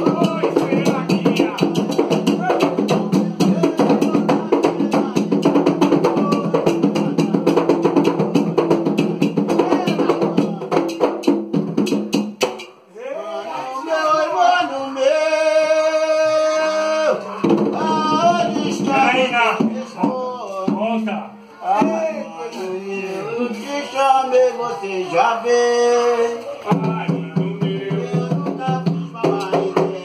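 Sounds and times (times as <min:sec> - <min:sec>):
single voice singing: 0:00.0 - 0:11.0, 0:13.0 - 0:30.0
hand drums in fast rhythm: 0:00.0 - 0:12.8, 0:17.4 - 0:20.9, 0:26.7 - 0:30.0
group singing: 0:00.0 - 0:30.0.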